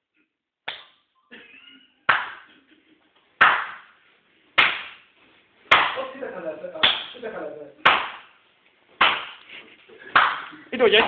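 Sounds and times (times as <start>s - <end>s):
sharp hand slaps: 0.6s - 1.0s, 2.1s - 2.5s, 3.4s - 3.9s, 4.6s - 5.1s, 5.7s - 6.1s, 6.8s - 7.2s, 7.8s - 8.4s, 9.0s - 9.5s, 10.1s - 10.6s.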